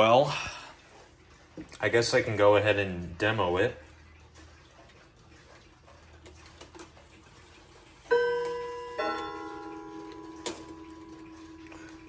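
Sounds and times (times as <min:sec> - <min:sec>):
clock chime notes ringing: 0:08.1 - 0:12.0
clock mechanism clicks: 0:08.1 - 0:12.0.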